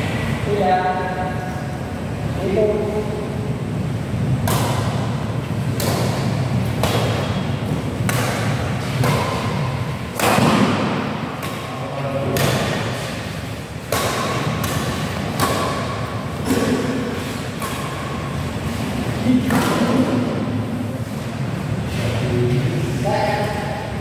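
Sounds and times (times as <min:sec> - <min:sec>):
rackets hitting shuttlecock: 0:04.4 - 0:20.6.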